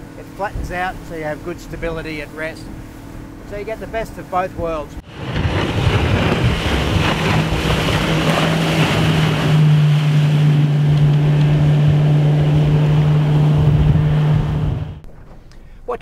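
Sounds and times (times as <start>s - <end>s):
motorboat engine drone: 0.0s - 15.1s
wind noise: 4.5s - 15.4s.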